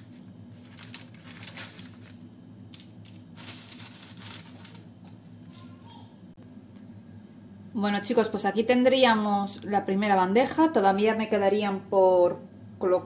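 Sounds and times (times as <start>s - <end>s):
paper rustling: 0.0s - 5.8s.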